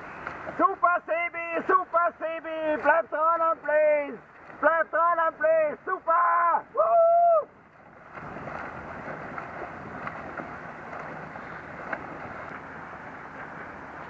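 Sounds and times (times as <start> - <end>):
person calling out: 4.9 - 7.5
wind on microphone: 7.5 - 14.0.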